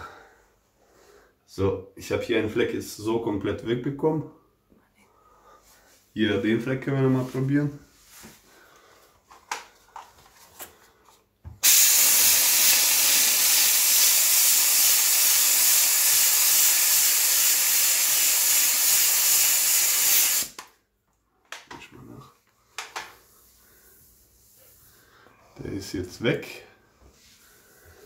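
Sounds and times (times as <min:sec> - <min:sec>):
steam jet hissing: 0:11.6 - 0:20.6.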